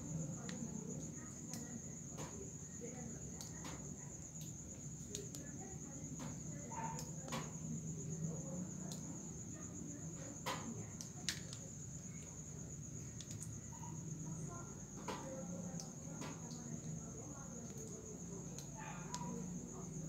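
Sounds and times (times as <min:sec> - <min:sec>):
crickets trilling: 0:00.0 - 0:20.0
faint clicks: 0:03.3 - 0:05.6, 0:10.4 - 0:12.4, 0:13.1 - 0:13.6, 0:15.0 - 0:19.4.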